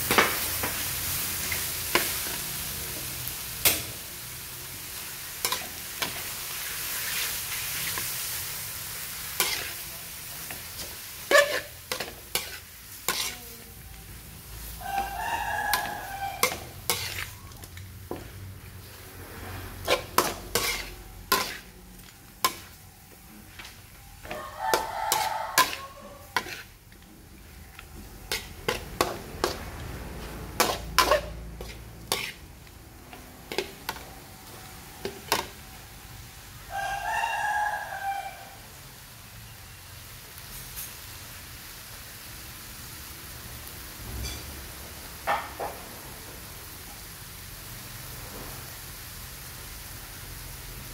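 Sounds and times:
food sizzling in hot oil: 0:00.0 - 0:50.9
metal spatula scraping a wok: 0:05.4 - 0:35.9, 0:44.1 - 0:44.7.

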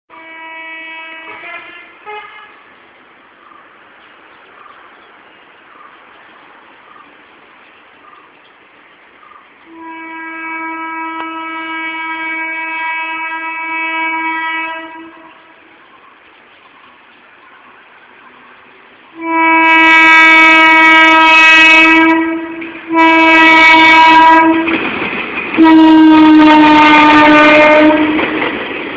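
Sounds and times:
locomotive horn blasts: 0:00.1 - 0:02.7, 0:09.7 - 0:15.7, 0:19.1 - 0:24.8, 0:25.6 - 0:28.4
steady hiss: 0:00.8 - 0:21.0.

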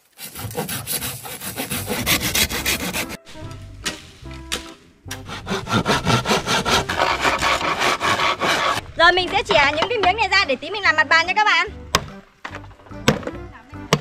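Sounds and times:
hand saw cutting bamboo: 0:00.0 - 0:03.2, 0:03.8 - 0:08.8.

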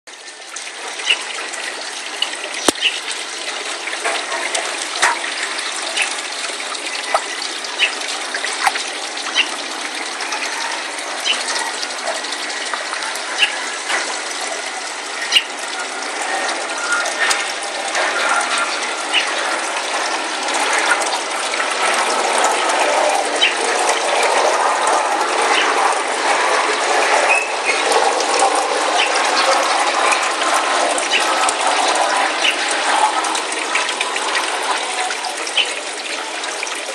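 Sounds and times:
sharp clicks and pops: 0:02.6 - 0:03.0
pond water splashing: 0:04.2 - 0:10.3.

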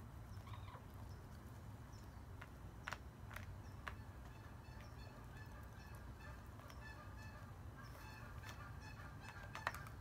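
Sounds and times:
hen pecking at feed dish: 0:00.4 - 0:10.0
distant geese honking: 0:03.6 - 0:10.0.

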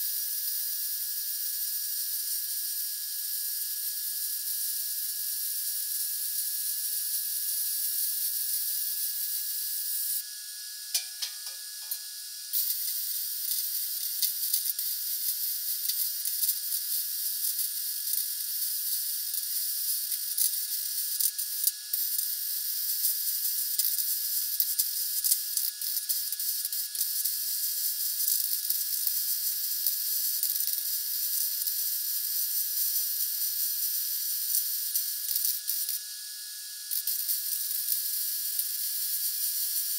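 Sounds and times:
welding arc hissing and crackling: 0:11.0 - 0:21.2, 0:37.0 - 0:39.9.

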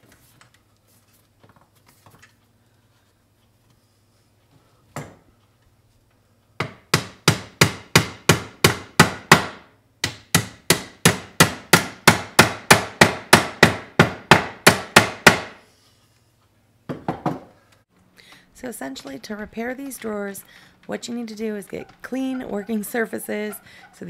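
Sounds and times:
hammer knocking on wood: 0:06.6 - 0:15.6, 0:16.9 - 0:17.5.

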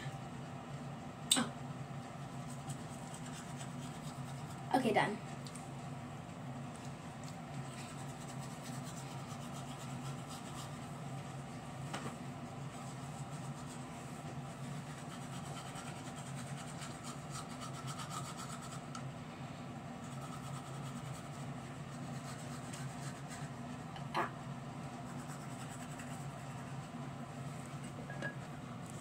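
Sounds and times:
toothbrush scrubbing teeth: 0:02.3 - 0:04.7, 0:07.2 - 0:10.9, 0:12.7 - 0:19.0, 0:20.0 - 0:23.6, 0:25.0 - 0:26.9.

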